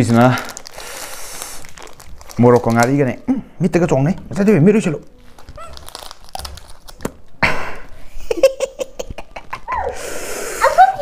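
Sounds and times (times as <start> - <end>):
plastic pouch crinkling: 0.0 - 3.3, 4.6 - 7.4
person laughing and giggling: 7.4 - 10.0.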